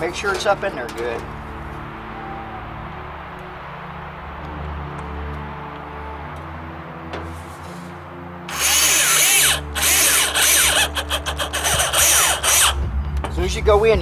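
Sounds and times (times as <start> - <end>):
cordless drill driving screw: 8.5 - 12.8.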